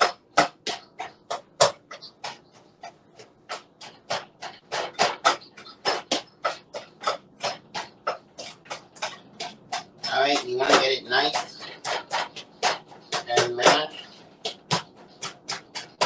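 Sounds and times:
utensil tapping a mixing bowl: 0:00.0 - 0:16.0.

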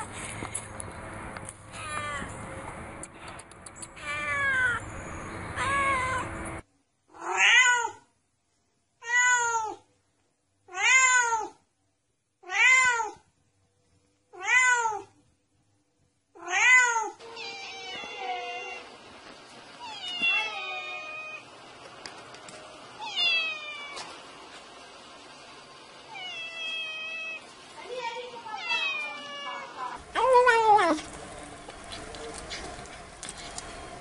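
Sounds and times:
cat meowing: 0:01.7 - 0:02.4, 0:03.9 - 0:04.8, 0:05.6 - 0:06.3, 0:07.1 - 0:08.1, 0:09.0 - 0:09.8, 0:10.7 - 0:11.6, 0:12.4 - 0:13.2, 0:14.3 - 0:15.1, 0:16.4 - 0:18.9, 0:19.8 - 0:21.4, 0:23.0 - 0:24.1, 0:26.1 - 0:27.4, 0:28.5 - 0:30.0.

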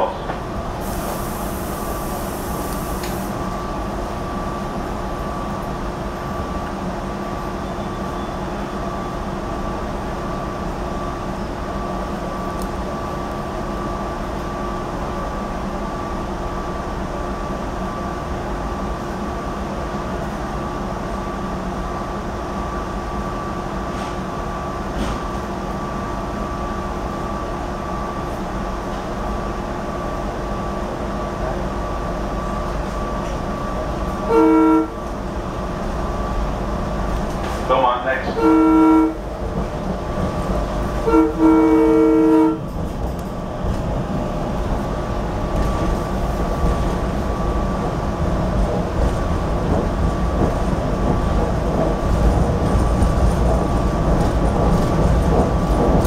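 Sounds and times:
railcar equipment hum: 0:00.0 - 0:56.0
train horn blast: 0:34.2 - 0:35.0, 0:38.2 - 0:39.2, 0:41.0 - 0:42.7.

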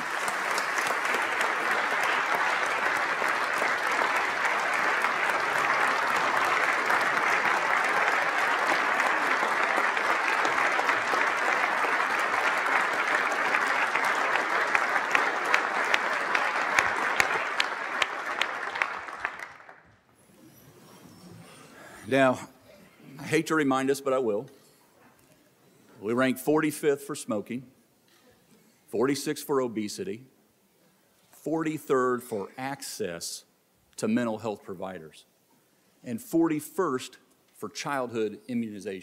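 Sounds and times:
audience applauding: 0:00.0 - 0:20.1.

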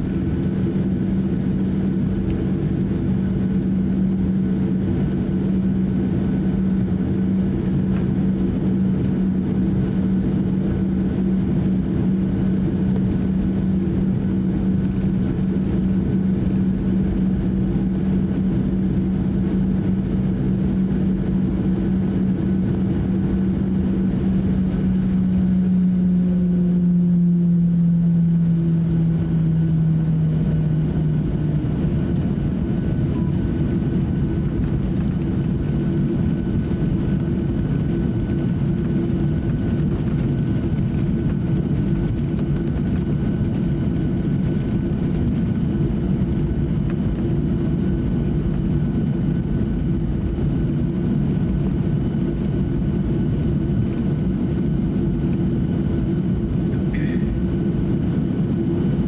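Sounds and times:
jet engines rumbling while taxiing: 0:00.0 - 0:59.0
low hum: 0:00.0 - 0:59.0.

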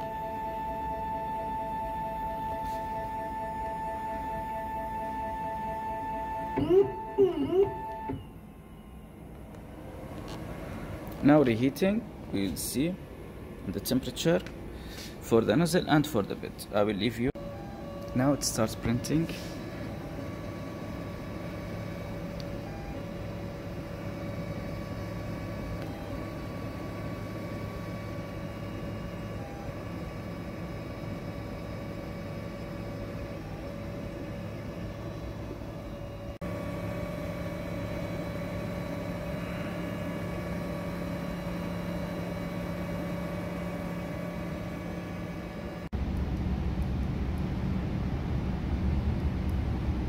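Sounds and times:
stepper motors whining: 0:00.0 - 0:12.6, 0:17.3 - 0:45.9
printer fans humming: 0:00.0 - 0:46.2.

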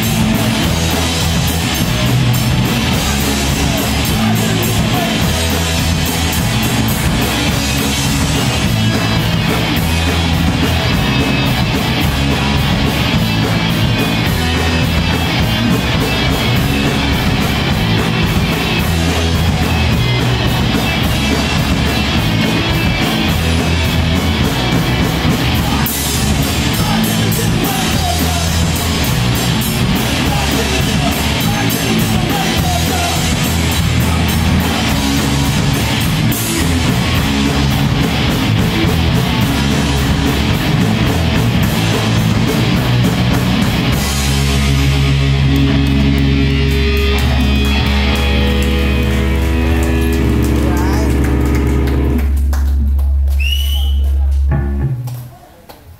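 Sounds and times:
rock band playing heavy music: 0:00.0 - 0:53.4, 0:54.0 - 0:55.1.

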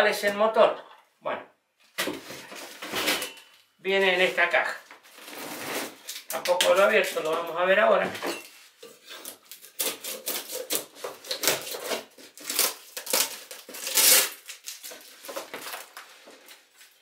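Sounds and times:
packing tape scraping and ripping: 0:05.0 - 0:07.3, 0:08.7 - 0:17.0.

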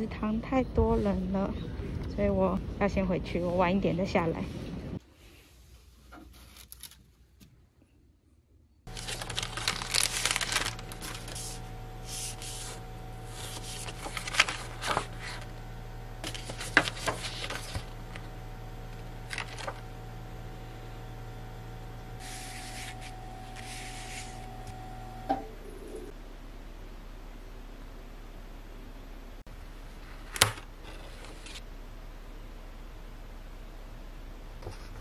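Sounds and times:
faint steady hum: 0:00.0 - 0:35.0
paper rustling and crinkling: 0:08.9 - 0:15.5, 0:16.2 - 0:18.3, 0:19.2 - 0:19.8, 0:22.2 - 0:24.6, 0:30.2 - 0:31.6.

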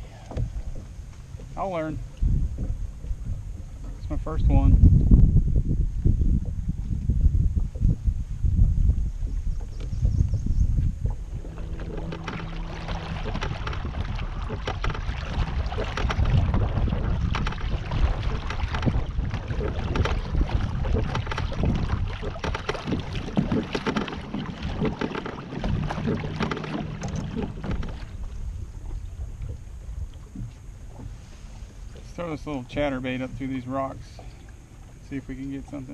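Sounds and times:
water splashing against hull: 0:00.0 - 0:35.9
wind on microphone: 0:00.0 - 0:35.9.

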